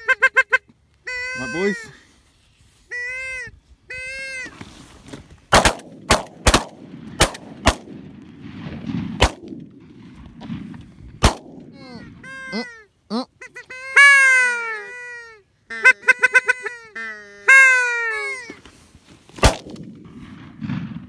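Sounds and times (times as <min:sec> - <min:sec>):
honking calls: 0:00.0 - 0:02.0, 0:11.7 - 0:18.8
shotgun shots: 0:05.5 - 0:09.8, 0:10.4 - 0:11.7, 0:19.4 - 0:21.0.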